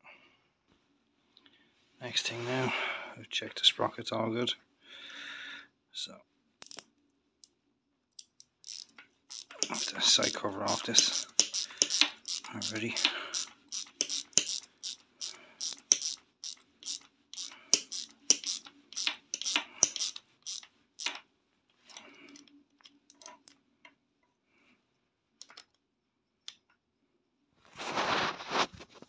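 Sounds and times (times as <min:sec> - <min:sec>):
ratchet wrench clicking: 0:06.6 - 0:06.8, 0:08.2 - 0:21.2
loud scrape: 0:27.8 - 0:28.9.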